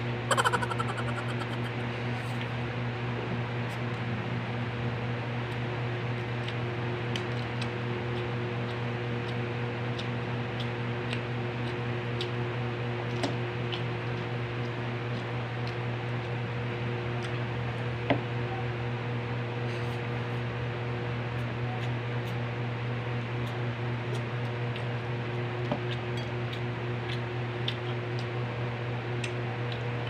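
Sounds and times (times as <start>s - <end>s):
chewing clicks: 0.3s - 1.8s, 25.9s - 28.4s, 29.2s - 30.0s.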